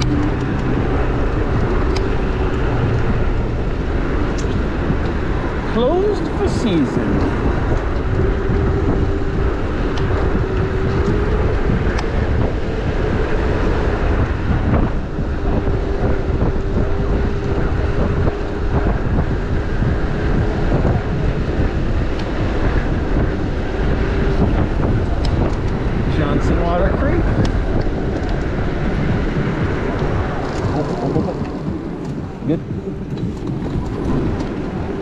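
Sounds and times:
wind rushing over microphone: 0.0 - 35.0.

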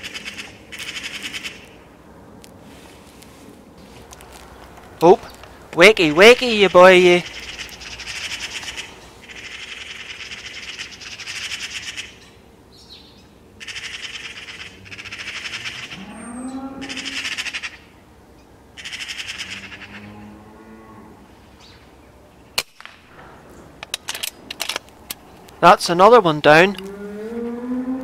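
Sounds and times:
magpies chattering: 0.0 - 1.8, 5.0 - 18.0, 18.8 - 20.1
cow mooing: 15.8 - 17.2, 19.5 - 21.3, 26.7 - 28.0
air rifle shot: 22.6 - 23.4.

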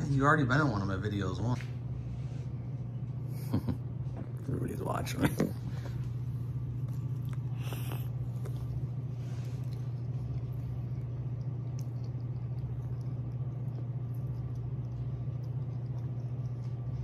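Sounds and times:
steady low hum: 0.0 - 17.0
mouth chewing sounds: 6.6 - 17.0.

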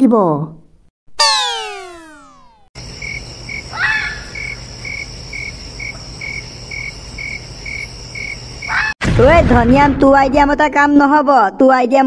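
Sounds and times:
falling whistle sound effect: 1.2 - 2.7
rising and falling call: 1.2 - 2.7
crickets chirping: 2.8 - 8.9
high insect trill: 2.8 - 8.9.

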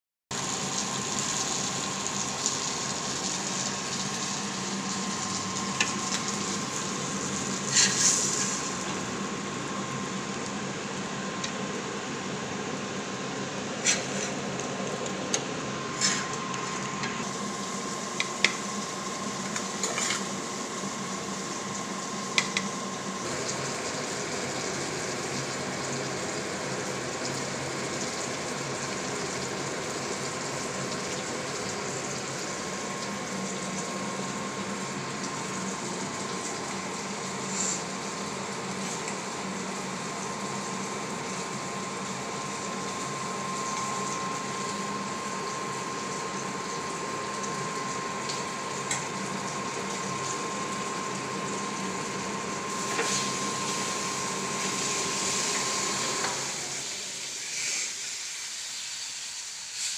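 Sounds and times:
steady hum and hiss: 0.4 - 59.9.

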